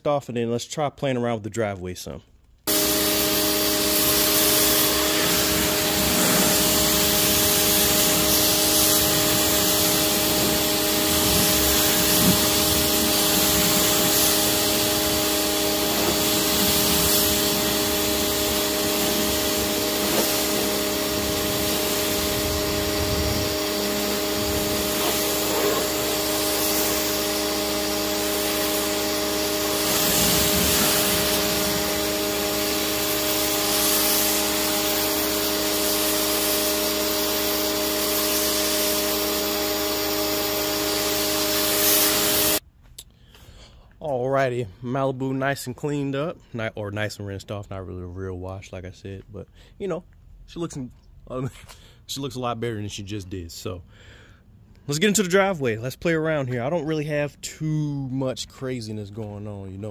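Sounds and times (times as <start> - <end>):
pressure washer motor humming: 2.7 - 42.6
water jet hissing: 2.7 - 42.6.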